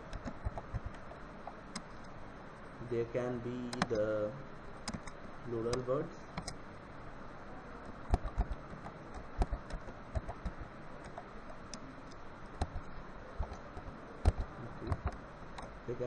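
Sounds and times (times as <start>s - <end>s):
computer keyboard typing: 0.0s - 2.1s, 3.7s - 4.1s, 4.8s - 6.6s, 8.1s - 15.7s
faint steady hiss: 0.0s - 16.0s.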